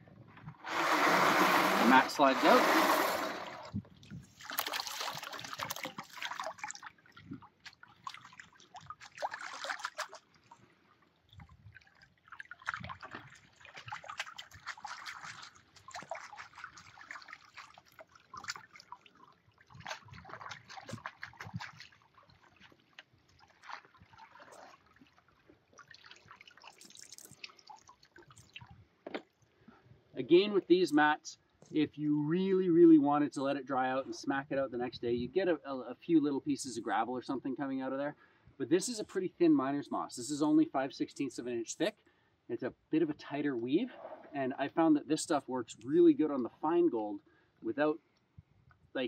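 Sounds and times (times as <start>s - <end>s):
water splashing and dripping: 0.6s - 29.5s.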